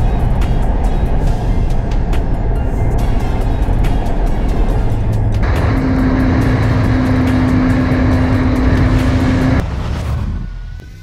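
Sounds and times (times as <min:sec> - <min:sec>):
wind rush: 0:00.0 - 0:10.6
motorcycle engine at speed: 0:03.2 - 0:09.8.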